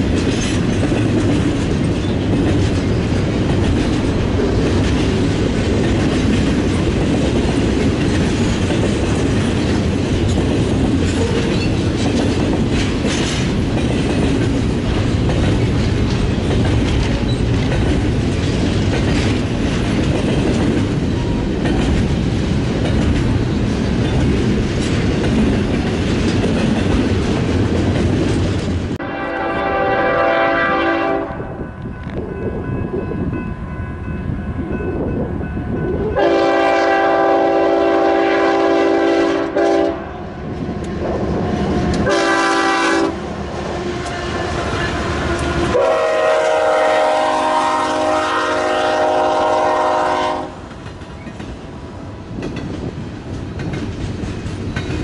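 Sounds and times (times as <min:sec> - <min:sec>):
wind on microphone: 0:00.0 - 0:48.7, 0:50.6 - 0:55.0
train rolling noise: 0:00.0 - 0:55.0
locomotive air horn blasts: 0:29.0 - 0:31.5, 0:36.2 - 0:40.1, 0:42.0 - 0:43.2, 0:43.8 - 0:50.6.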